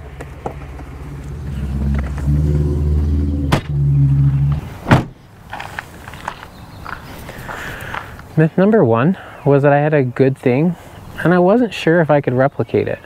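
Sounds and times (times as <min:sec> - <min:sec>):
vehicle engine humming: 0:00.0 - 0:08.1
van door slamming: 0:01.7 - 0:05.2.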